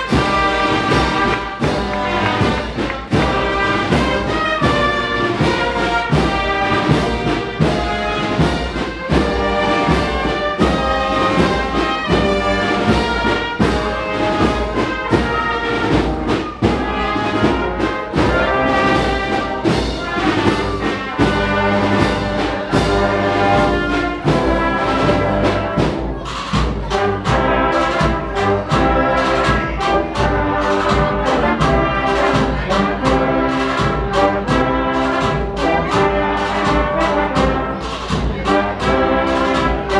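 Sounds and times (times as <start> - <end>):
brass band playing march: 0.0 - 39.9
steady drum beat: 0.0 - 39.9.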